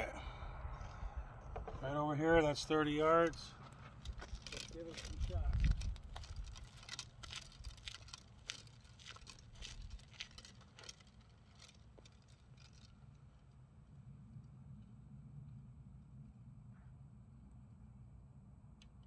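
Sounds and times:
low hum: 0.0s - 19.0s
footsteps on asphalt: 2.4s - 13.0s.

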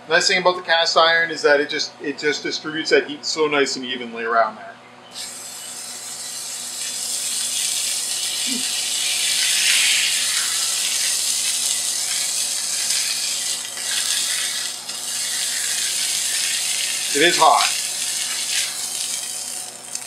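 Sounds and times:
exhaust fan humming: 0.0s - 20.0s
meat sizzling in a frying pan: 5.2s - 20.0s.

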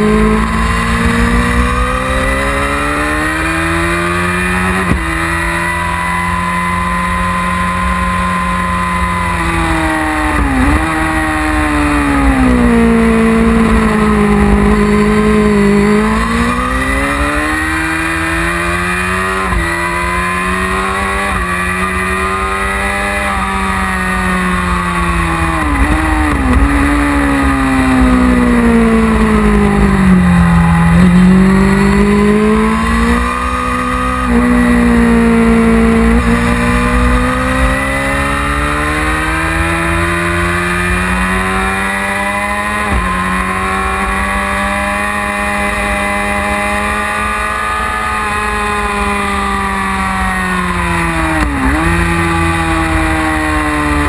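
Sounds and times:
motorcycle engine at speed: 0.0s - 54.0s.

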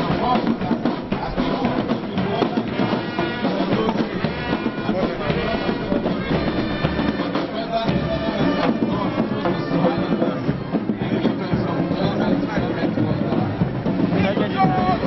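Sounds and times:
marching band playing: 0.0s - 15.0s.

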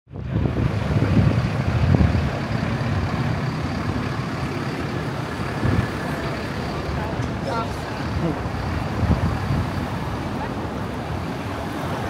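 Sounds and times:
road traffic rumble: 0.1s - 12.0s.

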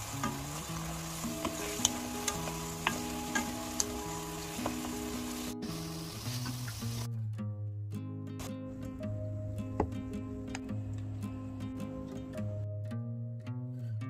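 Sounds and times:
liquid bubbling and sizzling in pan: 0.0s - 7.1s
soft background music: 0.0s - 14.0s.

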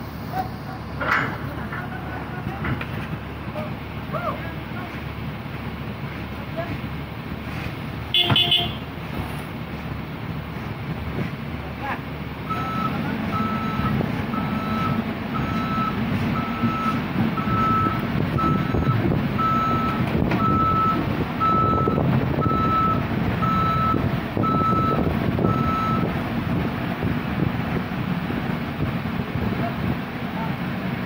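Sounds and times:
excavator engine running: 0.0s - 31.0s
tracks rumbling: 0.0s - 31.0s
excavator travel alarm beeping: 8.1s - 8.9s, 12.5s - 26.1s.

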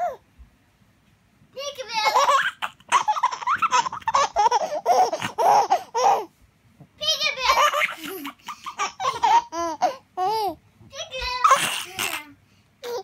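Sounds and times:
baby laughing: 1.9s - 6.3s, 7.2s - 10.6s, 11.2s - 13.0s.

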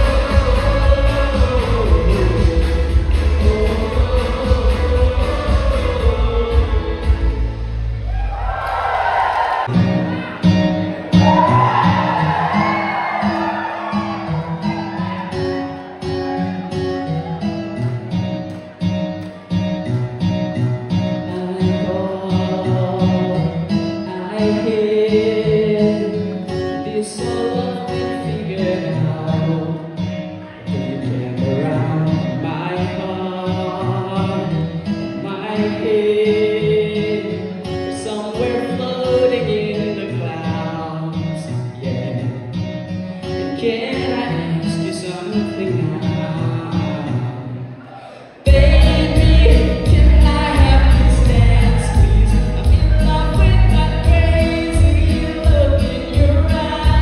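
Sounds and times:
man singing into microphone: 0.0s - 7.7s, 21.0s - 57.0s
backing music with guitar: 0.0s - 8.8s, 9.6s - 57.0s.

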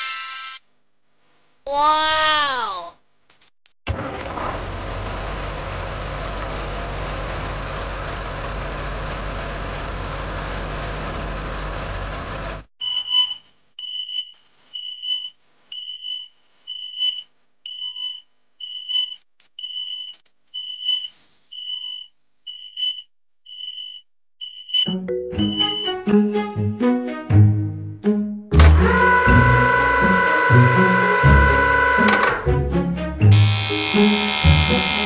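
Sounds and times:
cartoon truck engine rumble: 3.9s - 12.7s, 28.5s - 35.0s
high electronic beep: 24.4s - 26.0s.

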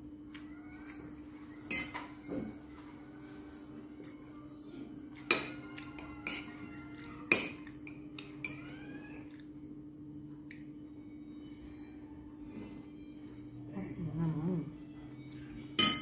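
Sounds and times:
cutlery clinking on ceramic plate: 1.7s - 2.1s, 5.2s - 6.6s, 15.8s - 16.0s.

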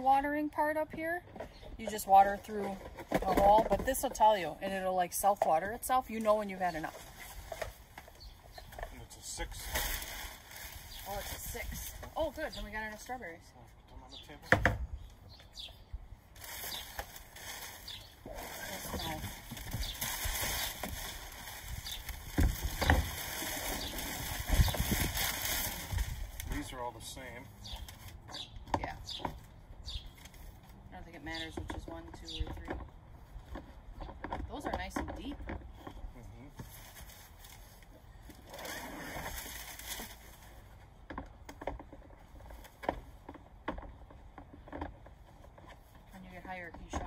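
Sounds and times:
packing paper rustling: 9.4s - 12.0s, 16.3s - 26.7s.

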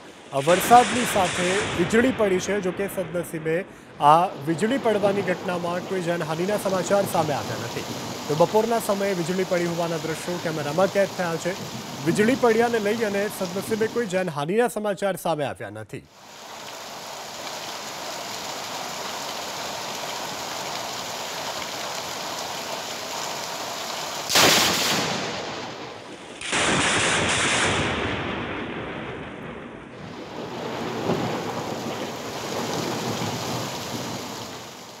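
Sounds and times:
heavy rain: 0.0s - 14.3s, 16.1s - 35.0s
loud thunderclap: 0.4s - 3.3s, 24.3s - 34.0s.

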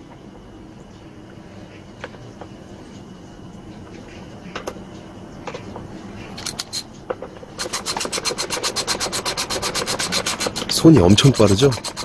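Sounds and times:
tool tapping plastic fan hub: 7.1s - 12.0s
ratchet clicking rapidly: 7.6s - 12.0s.

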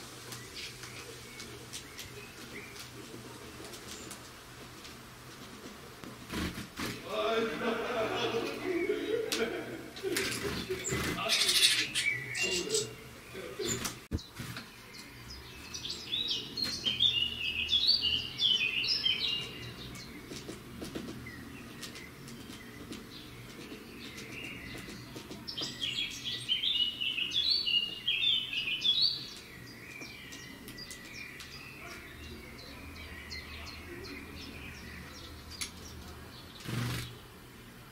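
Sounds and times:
bird chirping: 8.2s - 37.4s.

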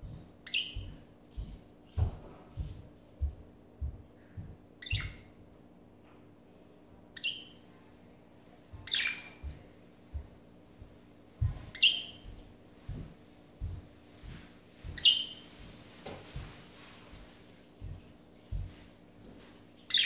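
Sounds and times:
soft low thuds: 0.0s - 5.3s, 8.7s - 19.5s
budgerigars chirping: 0.5s - 2.0s, 4.8s - 5.2s, 7.2s - 7.6s, 8.8s - 9.4s, 11.7s - 12.3s, 15.0s - 15.5s.

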